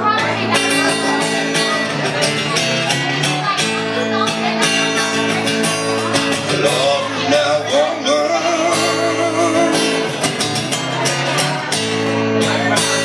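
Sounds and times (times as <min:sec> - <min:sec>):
blues band playing: 0:00.0 - 0:13.0
guitar: 0:00.0 - 0:13.0.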